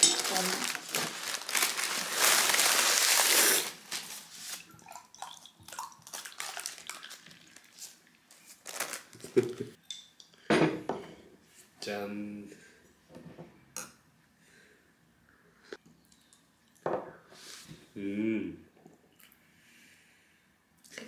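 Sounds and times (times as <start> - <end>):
beer fizzing and trickling: 4.4 - 8.2.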